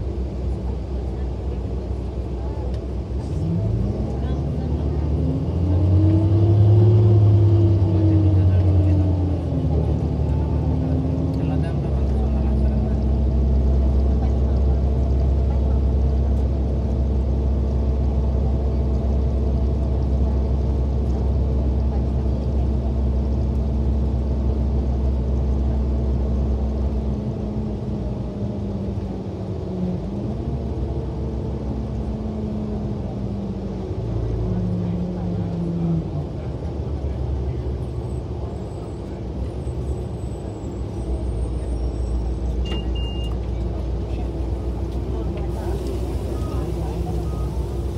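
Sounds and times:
bus engine drone: 0.0s - 47.9s.

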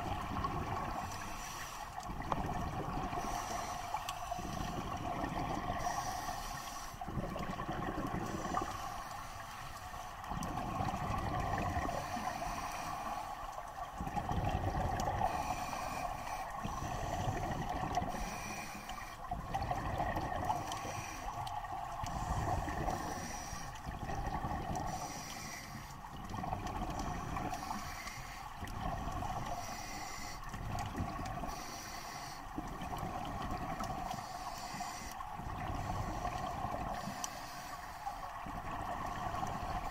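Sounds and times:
bubbles rumbling on exhalation: 2.1s - 3.2s, 7.1s - 8.5s, 14.0s - 15.3s, 19.4s - 20.6s.

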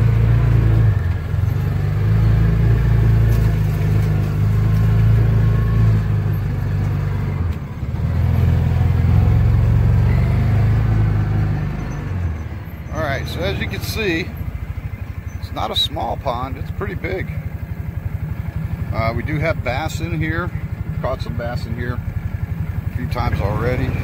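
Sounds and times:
utility vehicle engine running: 0.0s - 24.0s.

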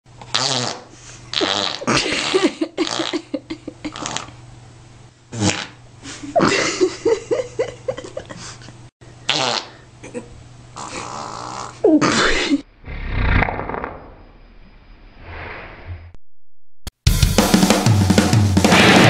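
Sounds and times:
farts: 0.2s - 2.0s, 2.8s - 3.1s, 3.9s - 4.3s, 5.4s - 5.8s, 9.3s - 9.7s, 10.8s - 14.2s.

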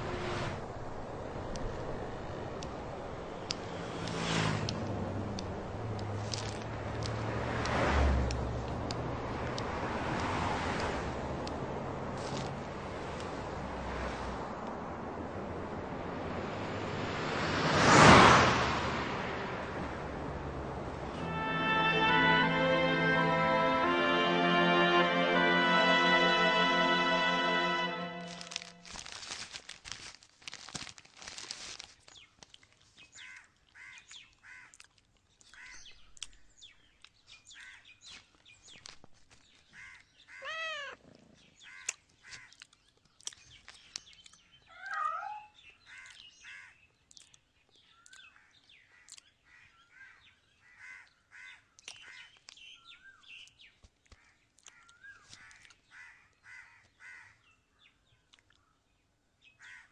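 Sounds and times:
plastic wrapping crinkling: 28.3s - 33.0s
cat mewing: 40.3s - 41.0s, 44.7s - 45.5s.

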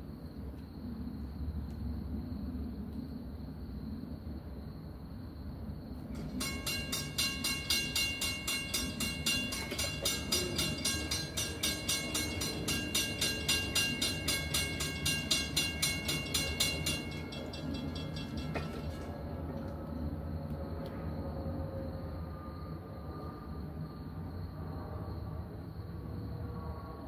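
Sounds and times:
train rumbling: 5.6s - 27.0s
railroad bell ringing: 6.1s - 20.0s.

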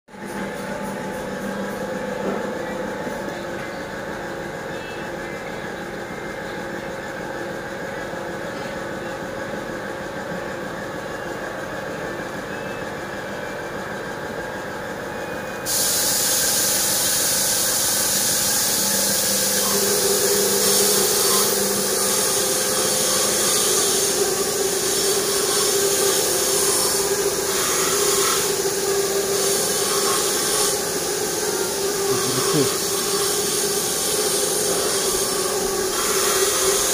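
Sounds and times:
machine hum with held tones: 0.1s - 36.9s
loud even hiss: 15.7s - 36.9s.

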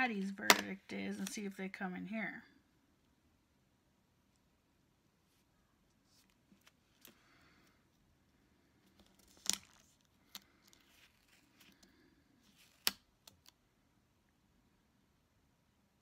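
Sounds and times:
light paper rustling: 8.9s - 13.5s.

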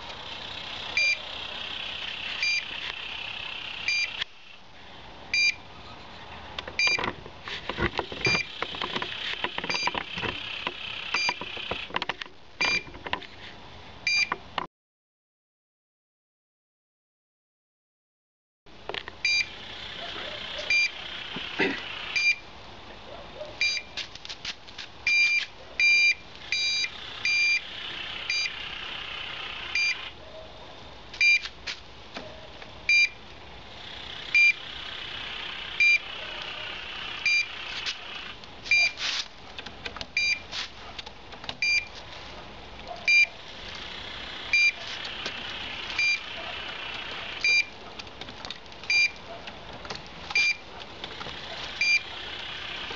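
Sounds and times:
locator beeping high-pitched pips: 0.9s - 4.3s, 5.4s - 5.6s, 8.2s - 9.0s, 9.6s - 11.9s, 12.6s - 12.9s, 14.1s - 14.4s, 19.2s - 19.6s, 20.6s - 22.4s, 23.6s - 24.0s, 25.1s - 30.1s, 31.2s - 31.5s, 32.9s - 33.2s, 33.9s - 39.0s, 40.2s - 40.5s, 41.6s - 41.9s, 43.1s - 43.3s, 44.2s - 47.8s, 48.9s - 49.2s, 50.3s - 50.6s, 51.8s - 52.9s.

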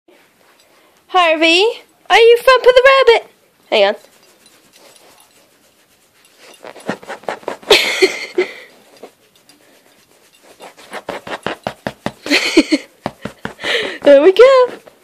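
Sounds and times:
dog leg thumping on leather couch: 6.6s - 7.8s, 10.6s - 15.0s.

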